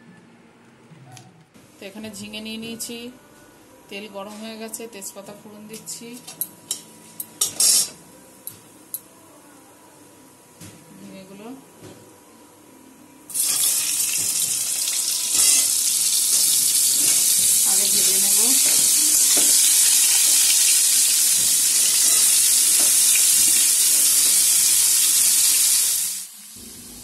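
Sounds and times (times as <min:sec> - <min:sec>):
frying sizzle in hot oil: 0:13.3 - 0:27.0.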